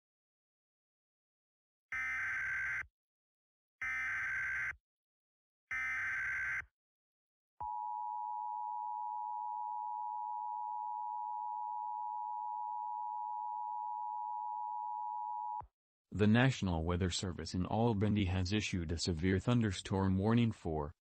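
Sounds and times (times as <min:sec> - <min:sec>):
steady alarm tone: 0:01.9 - 0:02.9, 0:03.8 - 0:04.8, 0:05.7 - 0:06.6.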